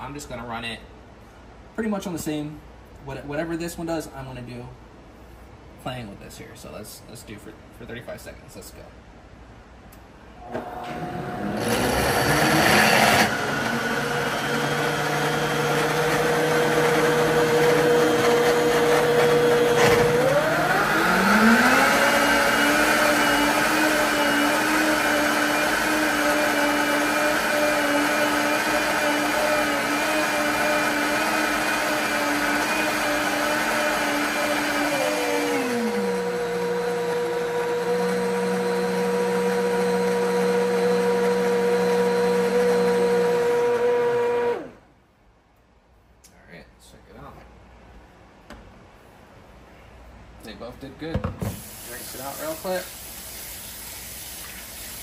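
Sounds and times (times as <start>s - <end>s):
blender motor running: 10.4s - 44.8s.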